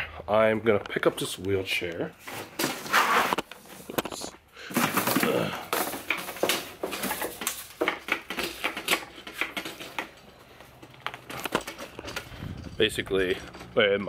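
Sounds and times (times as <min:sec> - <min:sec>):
metal wheelchair rattling: 0:05.0 - 0:14.0.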